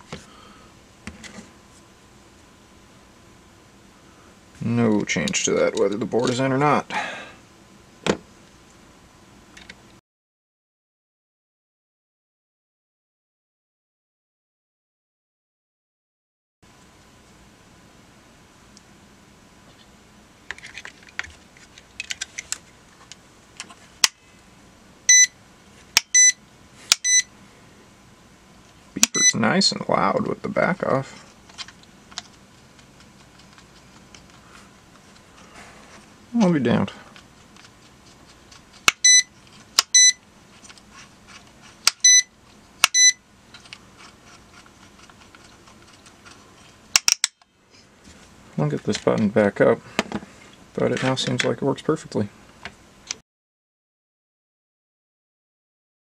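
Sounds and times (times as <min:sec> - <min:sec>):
high meter beeps: 0:25.1 - 0:25.3, 0:26.1 - 0:26.4, 0:27.0 - 0:27.3, 0:29.1 - 0:29.4, 0:39.0 - 0:39.3, 0:39.9 - 0:40.2, 0:42.0 - 0:42.3, 0:42.9 - 0:43.2.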